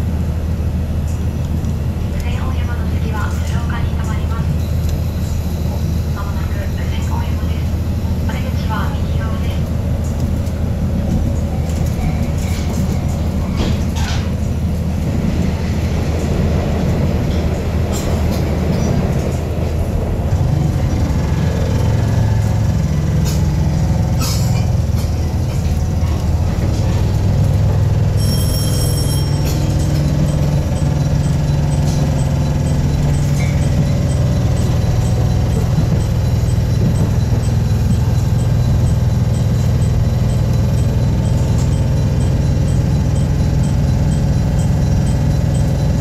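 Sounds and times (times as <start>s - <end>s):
diesel engine droning: 0.0s - 46.0s
high squeal: 28.2s - 29.9s.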